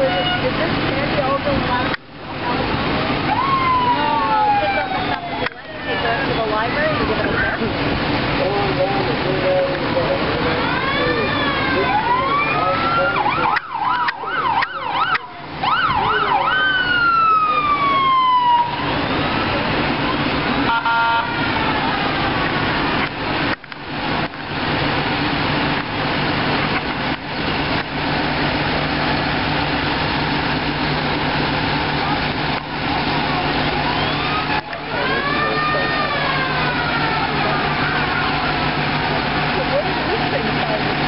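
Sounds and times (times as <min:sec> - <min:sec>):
tractor diesel engine passing: 0:00.0 - 0:41.0
emergency siren wailing and yelping: 0:03.1 - 0:07.7, 0:08.4 - 0:23.1, 0:28.2 - 0:41.0.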